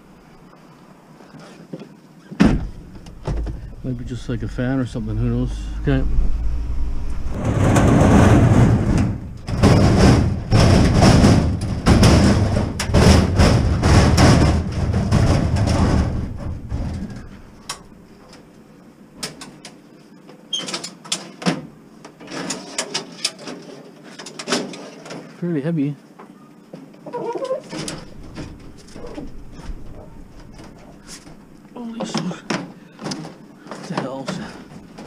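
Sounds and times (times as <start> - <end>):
filing cabinet clicks and knocks: 7.4 - 17.9.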